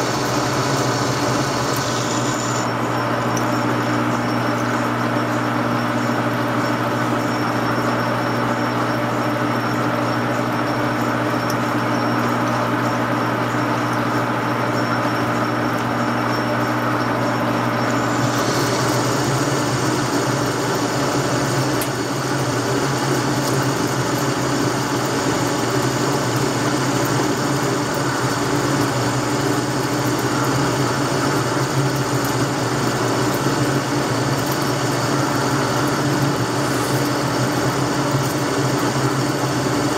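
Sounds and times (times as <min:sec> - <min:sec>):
metal lathe cutting: 0:00.0 - 0:04.7, 0:15.4 - 0:39.9.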